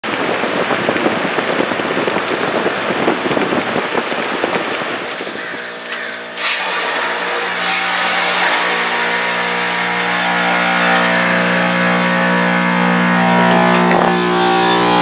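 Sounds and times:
rough crackly noise: 0:00.0 - 0:15.0
compressor hum: 0:00.1 - 0:15.0
refrigerant hissing: 0:05.0 - 0:12.6.

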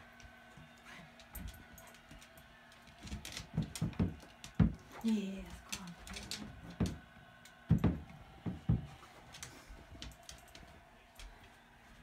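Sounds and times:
dull knocks and thumps indoors: 0:03.0 - 0:05.0, 0:06.0 - 0:09.2.

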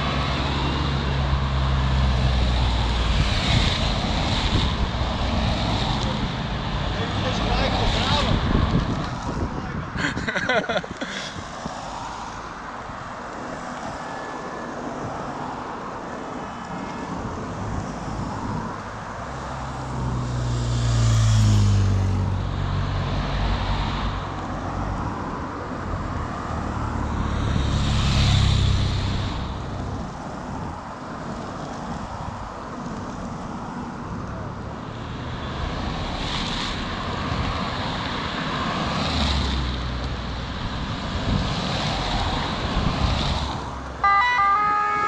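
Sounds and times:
road noise: 0:00.0 - 0:45.0
vehicles driving past: 0:00.0 - 0:45.0
wind noise: 0:01.8 - 0:14.0, 0:16.8 - 0:20.0, 0:40.3 - 0:44.0.

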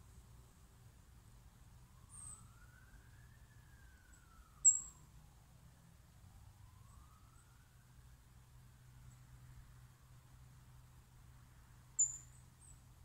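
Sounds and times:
faint siren wailing: 0:01.5 - 0:09.9.

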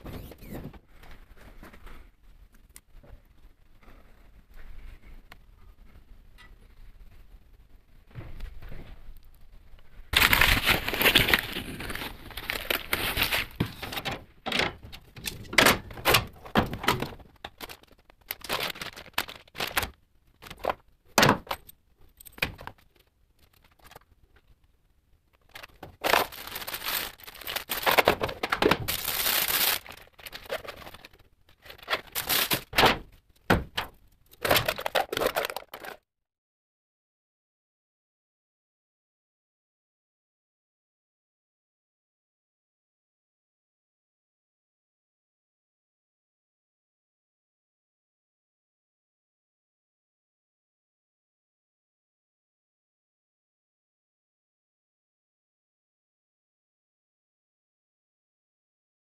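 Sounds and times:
plastic bags crinkling: 0:10.2 - 0:14.2, 0:16.3 - 0:20.8, 0:25.4 - 0:32.8, 0:33.7 - 0:36.0.

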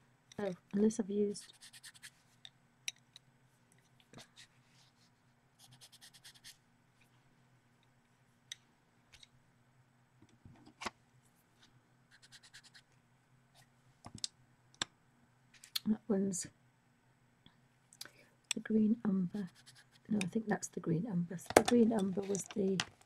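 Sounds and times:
faint steady hum: 0:00.0 - 0:23.0
pencil scratching on paper: 0:01.4 - 0:02.2, 0:05.6 - 0:06.6, 0:12.1 - 0:12.8, 0:19.4 - 0:20.1.

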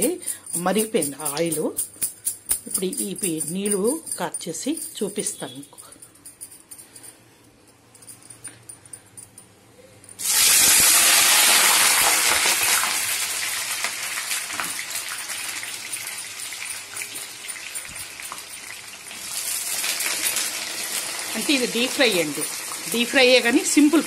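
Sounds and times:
oil bubbling and crackling: 0:10.2 - 0:21.4
eggplant sizzling in hot oil: 0:10.2 - 0:24.0.

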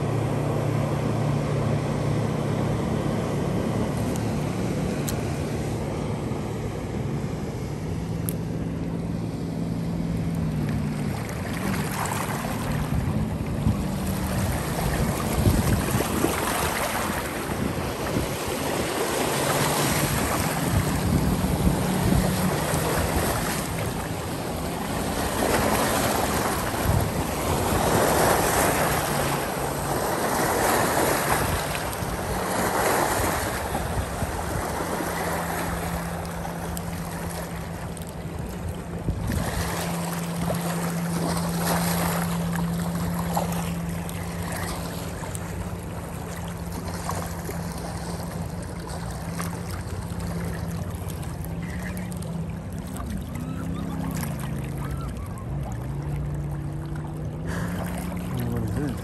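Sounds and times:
steady low hum: 0:00.0 - 0:59.0
wind buffeting microphone: 0:12.4 - 0:24.4, 0:25.0 - 0:29.2.

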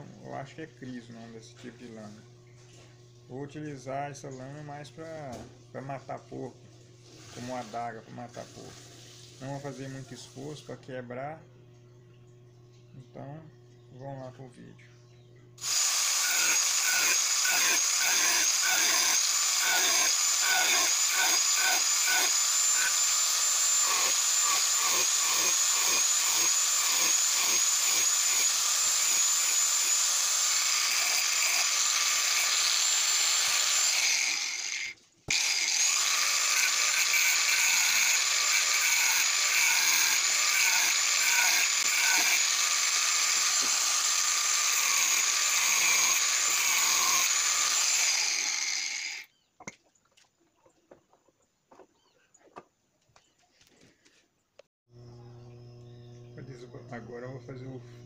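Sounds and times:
angle grinder grinding steel: 0:15.6 - 0:49.3.

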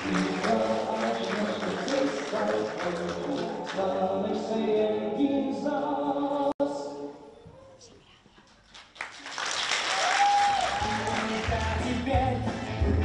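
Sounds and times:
choir singing unaccompanied: 0:00.0 - 0:06.5.

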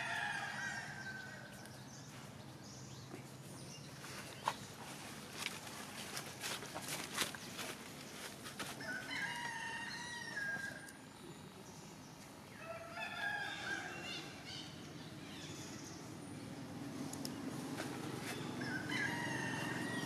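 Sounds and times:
rooster crowing: 0:08.8 - 0:10.9, 0:12.6 - 0:14.4, 0:18.6 - 0:20.0.

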